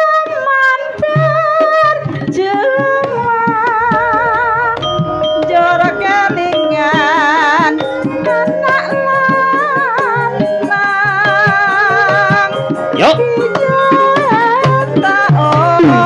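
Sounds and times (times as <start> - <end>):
woman singing with vibrato: 0.0 - 16.0
hand drum strokes: 1.9 - 9.3
metallophone tones: 3.0 - 9.2.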